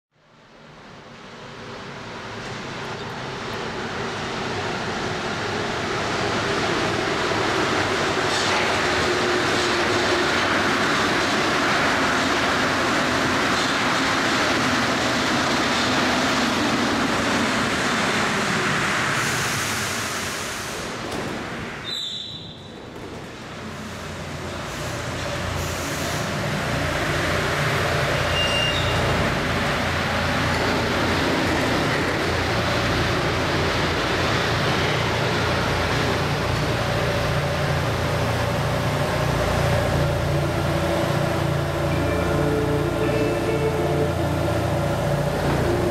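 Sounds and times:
metro train arriving and braking: 0:00.2 - 0:45.9
standing train low hum: 0:00.2 - 0:45.9.

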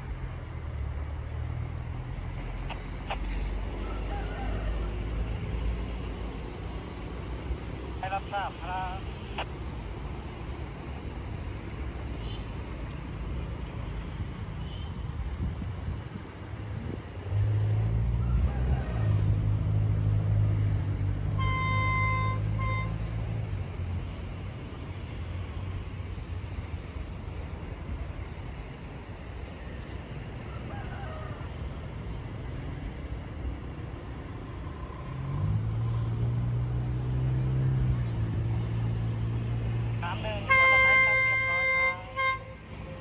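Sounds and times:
horn blasts: 0:21.4 - 0:23.1, 0:40.1 - 0:43.0.

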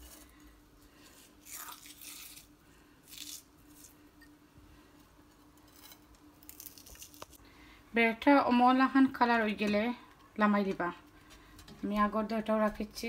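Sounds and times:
faint steady hum: 0:00.0 - 0:13.0
fried onions crunching: 0:01.0 - 0:04.0, 0:06.3 - 0:07.4.

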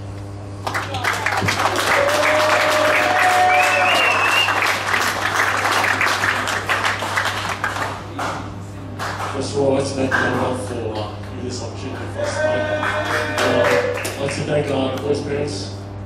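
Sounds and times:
crowd applauding: 0:00.6 - 0:09.4, 0:12.2 - 0:14.5
whoop or whistle: 0:01.9 - 0:04.6.

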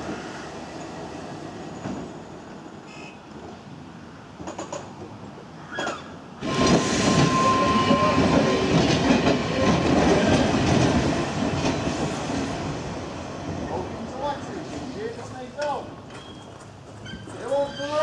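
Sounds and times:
tram wheels clattering on rails: 0:04.4 - 0:05.2, 0:05.8 - 0:18.0.

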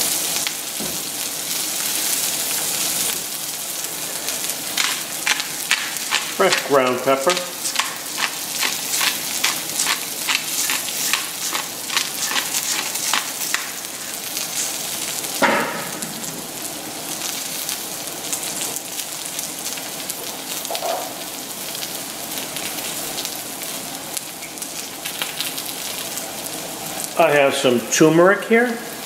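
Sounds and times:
onions sizzling in oil: 0:00.0 - 0:29.0
pepper mill grinding clicks: 0:04.8 - 0:13.7.

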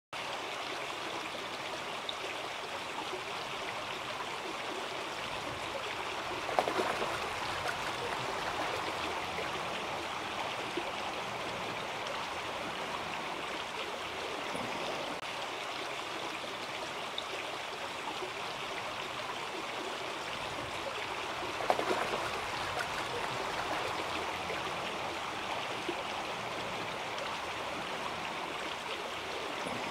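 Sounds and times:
creek water running over gravel: 0:00.2 - 0:29.9
water splashes: 0:03.2 - 0:15.4, 0:19.5 - 0:29.9.

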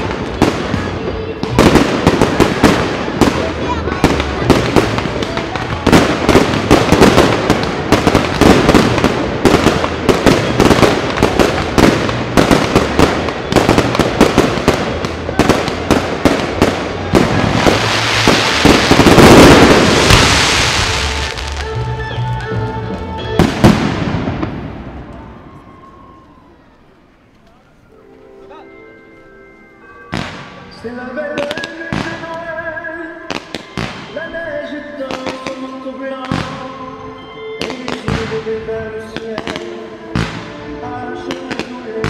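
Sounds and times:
music: 0:00.0 - 0:08.5, 0:20.5 - 0:24.5, 0:27.9 - 0:42.0
firework bangs: 0:00.0 - 0:22.6, 0:23.2 - 0:25.8, 0:30.1 - 0:36.8, 0:37.6 - 0:42.0.

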